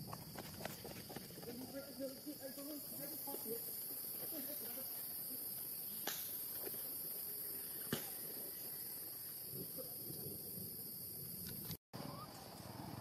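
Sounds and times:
high-pitched insect chorus: 0.0s - 11.8s.

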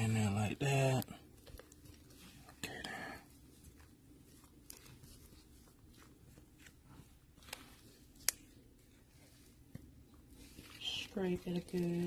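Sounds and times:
spatula pushing batter: 3.4s - 12.0s.

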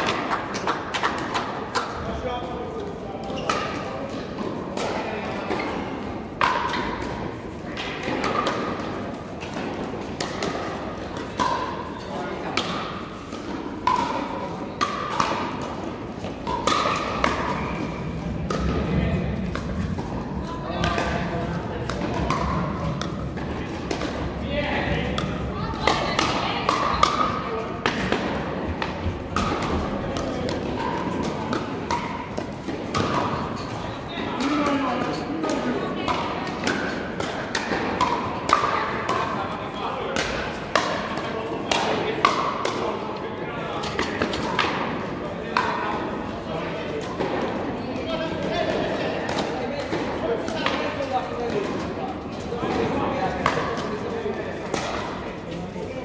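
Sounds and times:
paddles hitting plastic ball: 12.4s - 24.3s, 24.9s - 33.8s.

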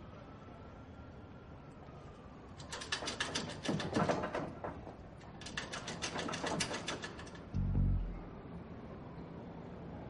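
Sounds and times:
deep low boom: 7.6s - 8.4s
film soundtrack music: 7.6s - 8.4s.

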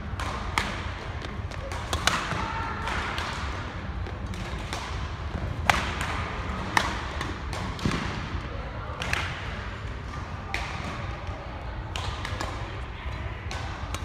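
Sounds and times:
racket hitting shuttlecock: 0.0s - 3.6s.

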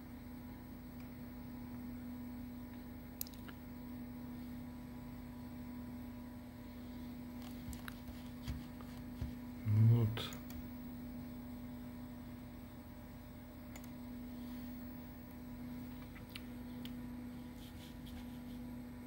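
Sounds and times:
computer fan humming: 0.0s - 19.0s.

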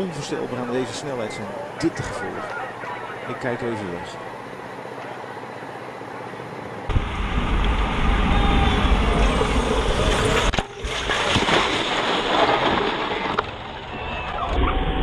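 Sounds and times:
wind rush on camera: 6.0s - 11.6s.

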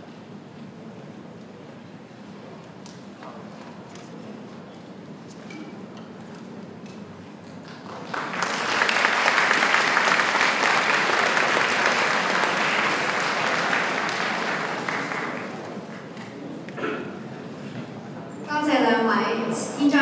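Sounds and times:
audience applauding: 7.6s - 16.2s.

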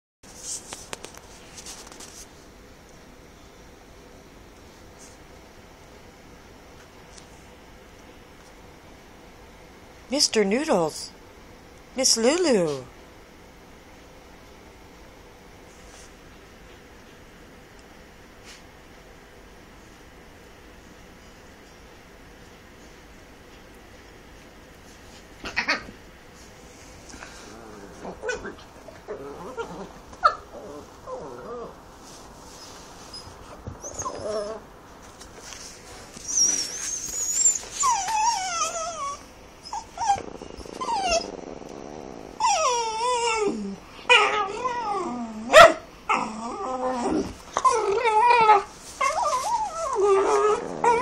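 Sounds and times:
dog whining vocalizations: 27.2s - 31.8s, 33.1s - 34.7s, 36.2s - 51.0s
dog whimpers: 33.1s - 34.7s, 36.2s - 51.0s.

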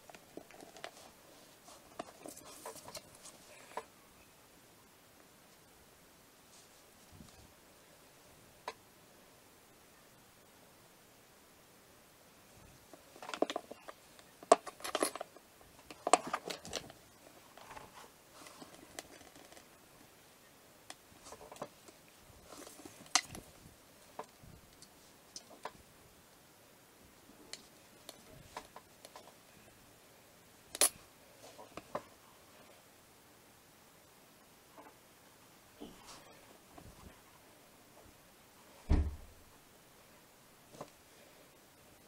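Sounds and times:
hands handling modelling dough: 0.0s - 4.0s, 6.3s - 8.8s, 12.4s - 30.0s.

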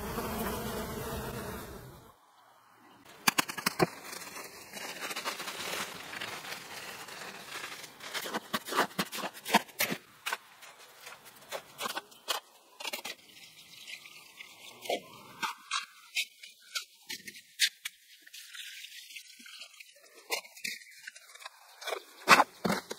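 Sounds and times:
trowel scraping through mix: 3.6s - 13.2s.

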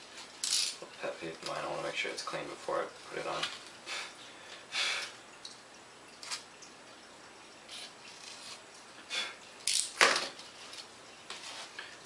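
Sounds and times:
scrapes and rubs on worktable: 11.3s - 11.8s.

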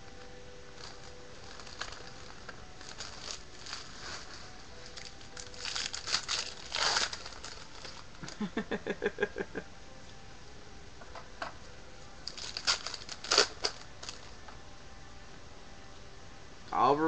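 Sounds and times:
foil wrappers crinkling and tearing: 0.1s - 8.6s, 12.2s - 14.4s.

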